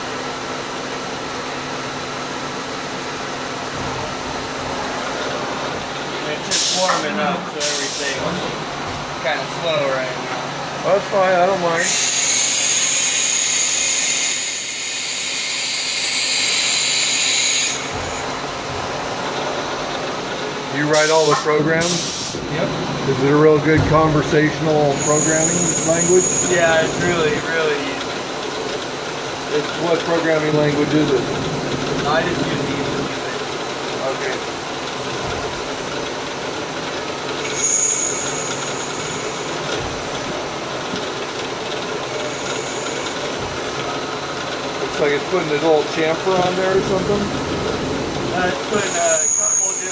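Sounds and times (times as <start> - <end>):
high-pitched cutting whine: 10.9 - 18.6, 20.8 - 28.1, 37.4 - 40.6, 41.9 - 43.4, 48.3 - 49.9
lathe drilling plastic: 11.6 - 18.5, 24.5 - 34.8, 35.6 - 47.6, 48.4 - 49.9.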